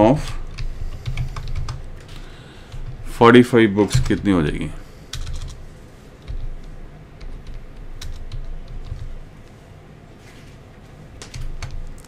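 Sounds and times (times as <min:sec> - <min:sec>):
computer keyboard typing: 0:00.4 - 0:03.0, 0:05.1 - 0:05.6, 0:06.2 - 0:09.2, 0:11.2 - 0:12.0.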